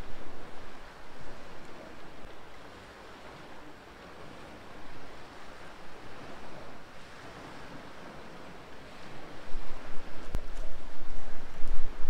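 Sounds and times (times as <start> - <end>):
sea waves washing on shore: 0.0 - 12.0
wind buffeting microphone: 4.2 - 12.0.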